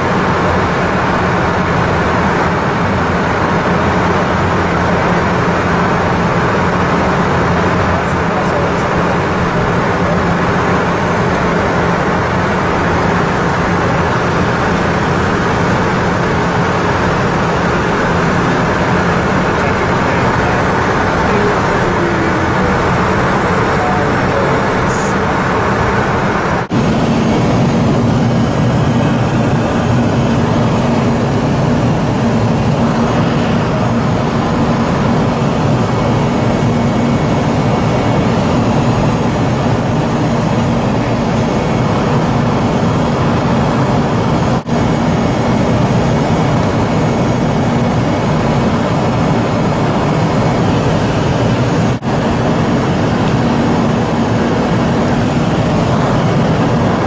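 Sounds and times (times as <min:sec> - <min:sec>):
low hum: 0:00.0 - 0:35.3
jet engines droning: 0:00.0 - 0:57.0
rushing air: 0:00.1 - 0:36.2.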